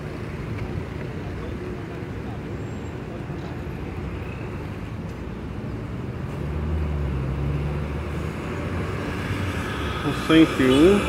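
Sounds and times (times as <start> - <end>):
traffic noise: 0.0 - 11.0.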